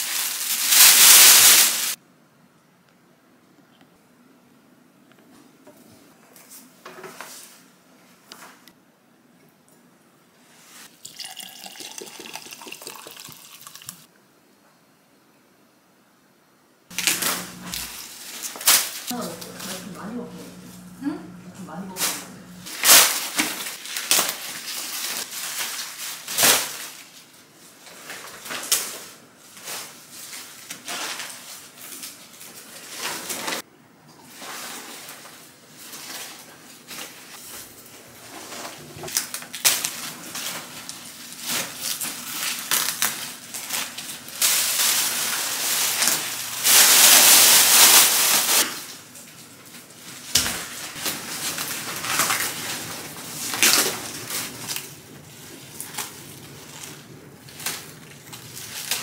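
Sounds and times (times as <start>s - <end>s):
rustling of leaves and plastic: 0.0s - 2.0s, 16.9s - 33.6s, 34.3s - 59.0s
cabbage leaves snapping: 55.6s - 59.0s.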